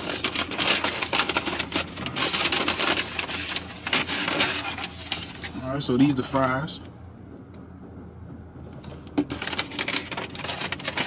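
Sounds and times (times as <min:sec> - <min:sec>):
paper bag crinkling: 0:00.0 - 0:05.6, 0:09.3 - 0:11.0
steady low hum: 0:00.0 - 0:11.0.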